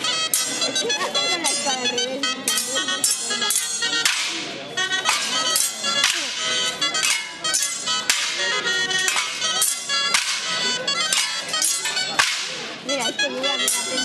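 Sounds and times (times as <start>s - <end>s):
folk music: 0.0s - 14.0s
sabres clashing on shields: 2.5s - 12.7s.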